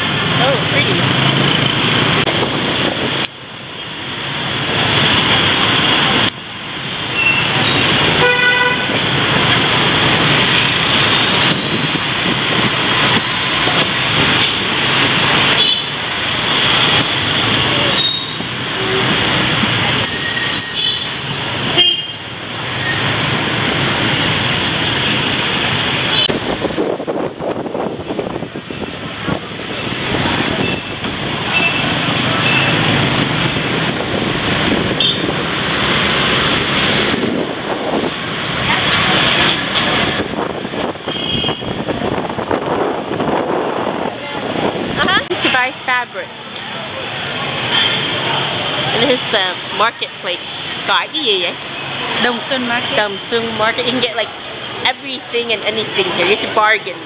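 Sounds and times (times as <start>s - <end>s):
street traffic: 0.0s - 57.0s
horn honking: 7.3s - 9.0s, 20.0s - 22.2s, 41.1s - 41.8s.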